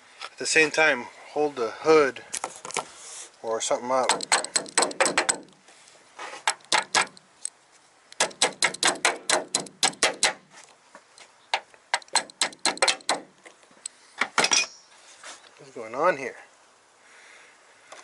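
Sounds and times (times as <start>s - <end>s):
ratchet tapping on metal: 4.1s - 5.5s, 8.2s - 10.4s, 12.0s - 13.2s.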